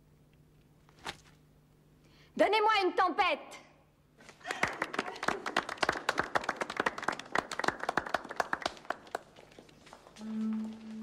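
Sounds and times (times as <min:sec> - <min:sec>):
group clapping: 0:04.2 - 0:10.2.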